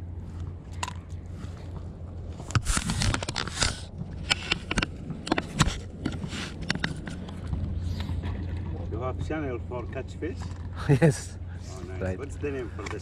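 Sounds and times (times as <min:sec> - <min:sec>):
steady low hum: 0:00.0 - 0:13.0
handling scraping and rustling: 0:00.3 - 0:08.6.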